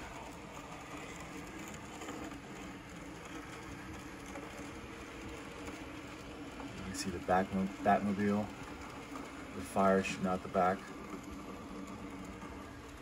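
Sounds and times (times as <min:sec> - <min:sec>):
model train motor whir: 0:00.0 - 0:13.0.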